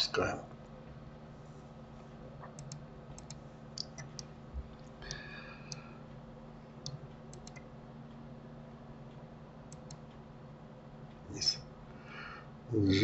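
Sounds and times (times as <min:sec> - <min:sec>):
low steady hum: 0:00.0 - 0:13.0
computer mouse clicks: 0:02.4 - 0:05.8, 0:06.8 - 0:07.7, 0:09.7 - 0:10.1.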